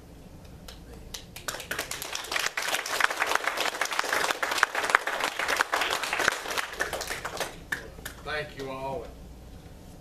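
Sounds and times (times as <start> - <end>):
crowd applauding: 1.4 - 8.2.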